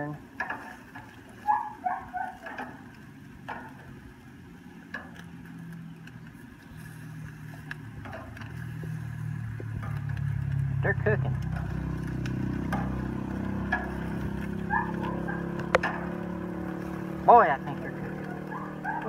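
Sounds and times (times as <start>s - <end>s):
low hum: 1.4s - 19.0s
tongs clicking on grill grate: 2.4s - 3.8s, 4.9s - 6.3s, 9.6s - 10.8s, 11.4s - 17.1s.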